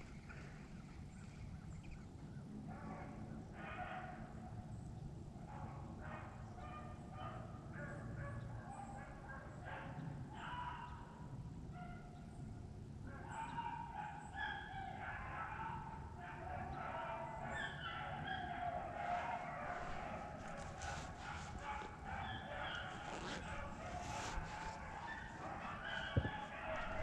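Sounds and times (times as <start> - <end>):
hounds baying: 5.5 - 11.2, 13.0 - 27.0.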